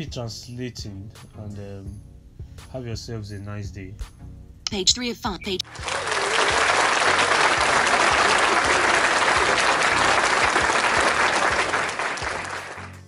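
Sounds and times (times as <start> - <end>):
crowd applauding: 5.6 - 13.0.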